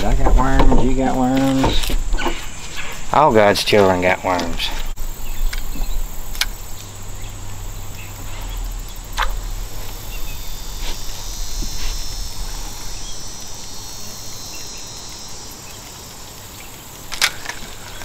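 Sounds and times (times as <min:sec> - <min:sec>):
insects buzzing: 0:00.0 - 0:18.0
low hum: 0:04.7 - 0:18.0
sharp clicks: 0:05.4 - 0:06.9.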